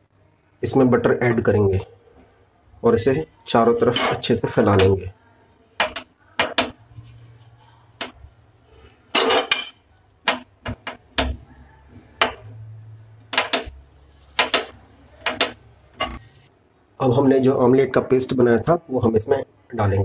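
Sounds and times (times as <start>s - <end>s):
spoon scraping frying pan: 3.6s - 5.0s, 5.7s - 16.5s.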